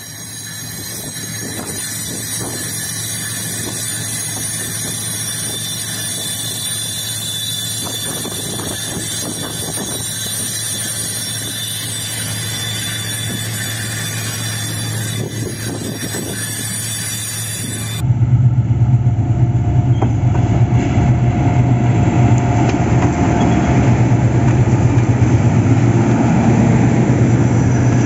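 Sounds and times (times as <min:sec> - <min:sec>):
wheels squealing: 0:00.0 - 0:18.0
diesel locomotive engine hum: 0:00.0 - 0:28.0
rail noise: 0:00.0 - 0:28.0.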